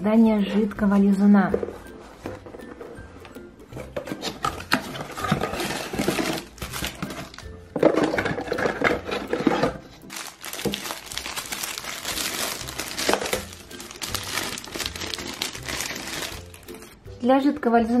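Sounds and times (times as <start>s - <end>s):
plastic bag crinkling: 5.4s - 7.4s, 10.1s - 17.0s.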